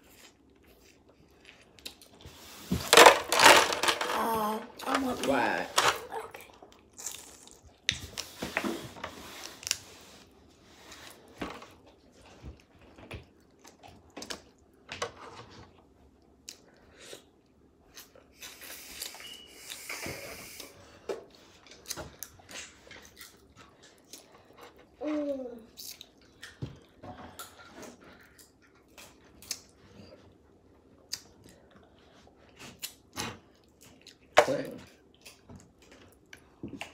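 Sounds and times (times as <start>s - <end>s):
chewing and crunching: 21.5s - 25.0s.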